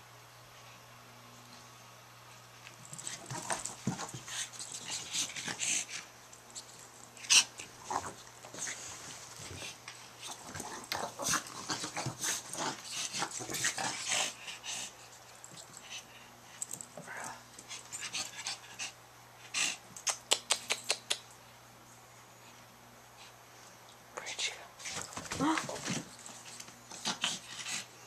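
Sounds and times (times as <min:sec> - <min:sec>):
puppy play noises: 0:02.6 - 0:21.4, 0:24.8 - 0:28.0
scuffling and rustling on a rug: 0:07.6 - 0:13.9, 0:24.8 - 0:27.8.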